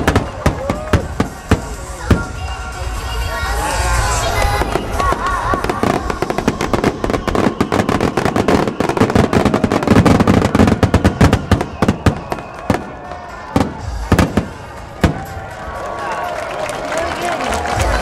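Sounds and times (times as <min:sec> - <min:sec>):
fireworks bursting: 0:00.0 - 0:15.6.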